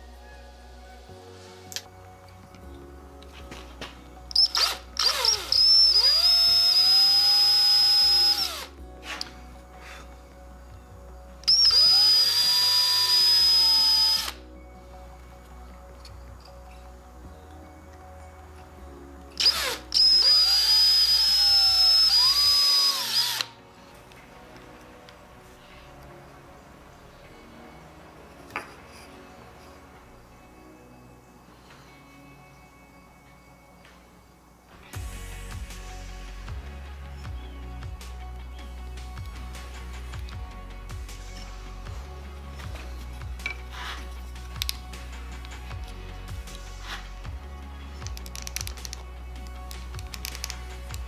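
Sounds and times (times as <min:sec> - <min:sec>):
power drill whining: 0:04.3 - 0:08.8, 0:11.4 - 0:14.4, 0:19.4 - 0:23.6.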